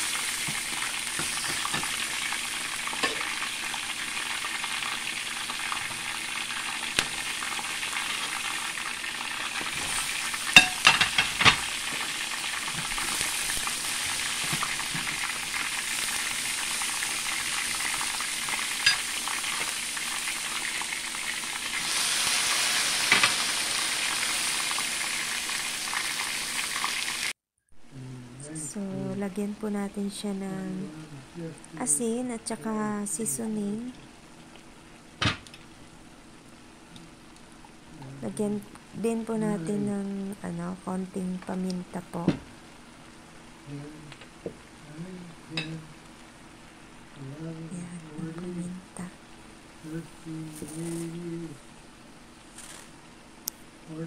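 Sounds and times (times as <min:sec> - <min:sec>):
food sizzling in a frying pan: 0:00.0 - 0:27.4, 0:40.7 - 0:47.2, 0:52.3 - 0:53.1
spatula clinking on metal: 0:10.6 - 0:11.2.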